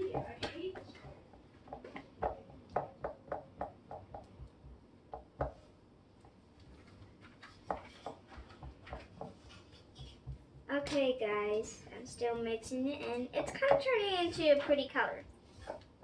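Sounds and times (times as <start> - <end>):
spatula stirring sticky slime: 6.2 - 10.6.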